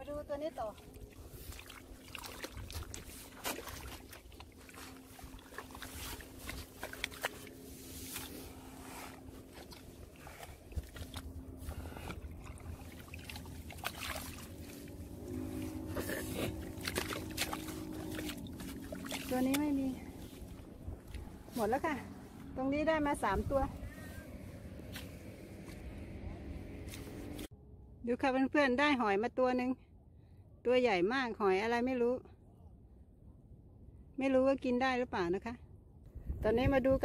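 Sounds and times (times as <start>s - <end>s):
steady low hum: 0.0s - 28.0s
shovel digging in wet mud: 1.5s - 21.8s.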